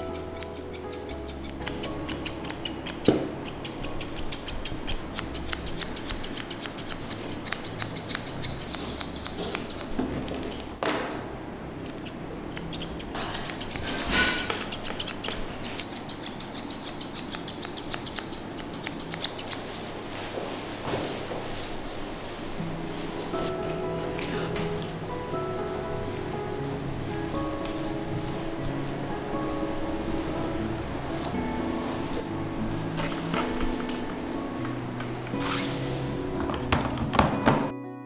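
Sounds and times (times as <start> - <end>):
scissors snipping fur: 0.0 - 10.7, 11.7 - 20.0.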